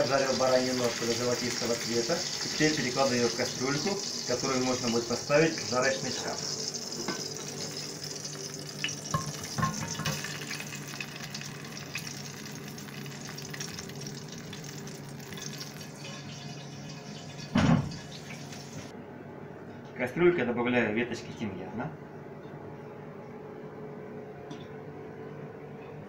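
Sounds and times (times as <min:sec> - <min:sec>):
meat sizzling in hot oil: 0:00.0 - 0:18.9.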